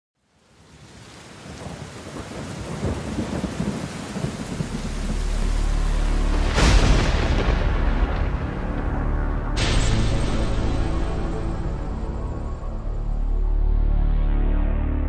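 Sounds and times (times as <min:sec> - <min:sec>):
rain hiss: 0:00.2 - 0:11.7
rolling thunder: 0:01.5 - 0:10.2
sharp thunderclap: 0:01.6 - 0:10.6.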